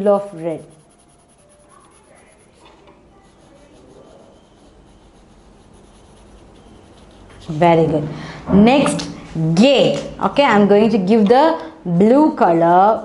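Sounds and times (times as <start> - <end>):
pencil rubbing on paper: 0.0 - 8.0.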